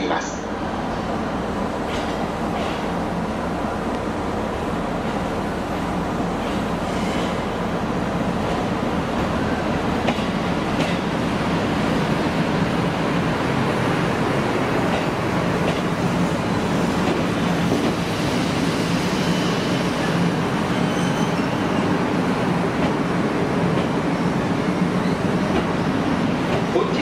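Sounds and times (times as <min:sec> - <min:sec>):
train wheels rumbling: 0:00.6 - 0:27.0
faint high brake squeal: 0:19.1 - 0:19.8, 0:20.7 - 0:21.6.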